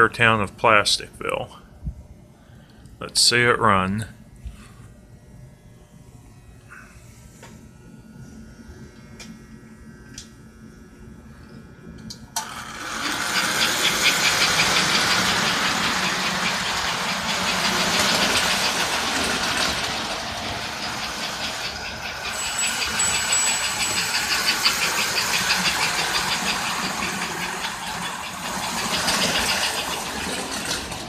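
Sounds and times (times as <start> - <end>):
toy train rumbling on track: 12.4 - 31.0.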